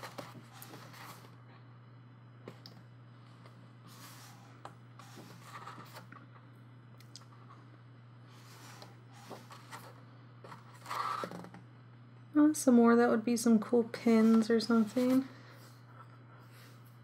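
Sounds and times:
paper pages turning: 0:00.0 - 0:01.4, 0:05.0 - 0:06.2, 0:08.3 - 0:11.5
faint low hum: 0:00.0 - 0:17.0.

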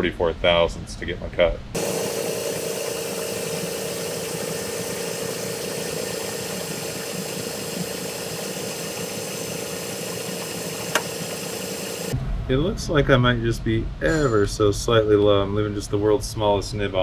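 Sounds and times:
lathe running with steady whine: 0:01.8 - 0:12.2.

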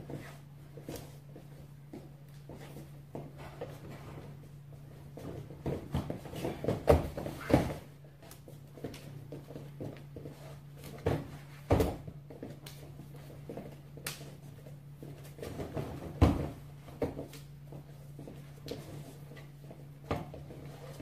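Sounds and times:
feet stamping on foam mats: 0:00.0 - 0:21.0
steady low hum: 0:00.0 - 0:21.0
bodies striking in grappling: 0:05.4 - 0:07.9.

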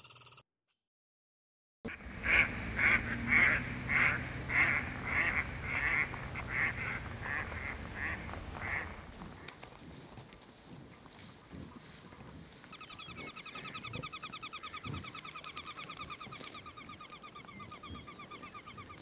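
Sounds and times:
low steady hum: 0:01.9 - 0:09.4
waterfowl quacking: 0:01.9 - 0:09.5.

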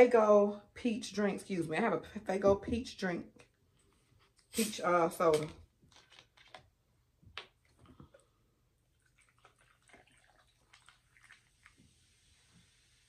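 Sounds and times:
soda pouring into a glass: 0:09.0 - 0:13.0.

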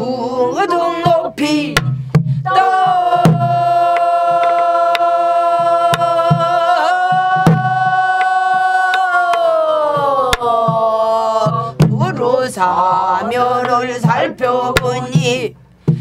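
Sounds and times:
low drum thumps: 0:00.9 - 0:09.1, 0:09.9 - 0:16.0
woman singing a long note: 0:02.4 - 0:15.2.

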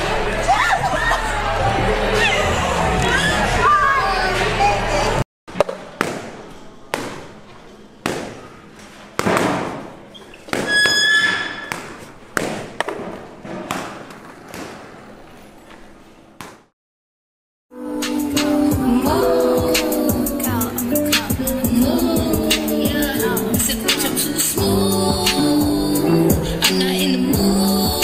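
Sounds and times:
echoing thuds and knocks: 0:09.2 - 0:10.8
high squeak: 0:10.1 - 0:11.7.

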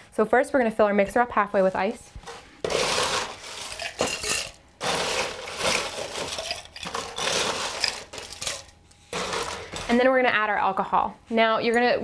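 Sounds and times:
ice cubes clattering in metal tin: 0:02.6 - 0:10.0.

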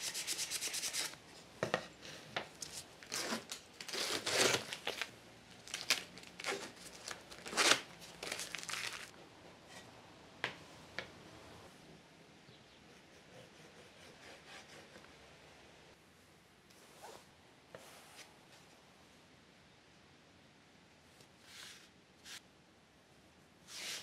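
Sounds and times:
tape peeling and crumpling: 0:02.6 - 0:09.1.

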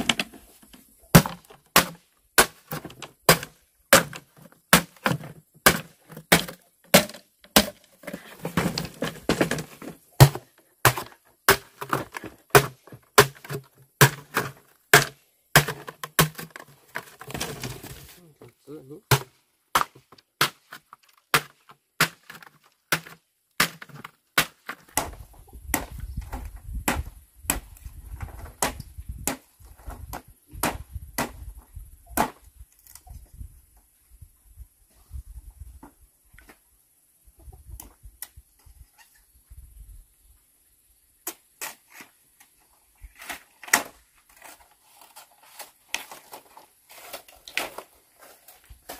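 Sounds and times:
machete chopping bamboo: 0:01.1 - 0:17.7, 0:19.1 - 0:27.7, 0:28.4 - 0:29.5, 0:30.1 - 0:31.4, 0:32.2 - 0:32.4.

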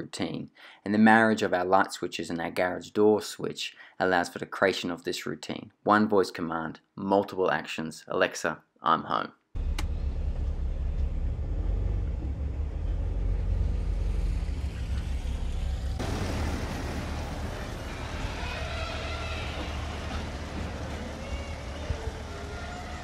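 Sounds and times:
car engine and road rumble inside: 0:09.6 - 0:18.3
car rolling on driveway: 0:09.6 - 0:23.0.

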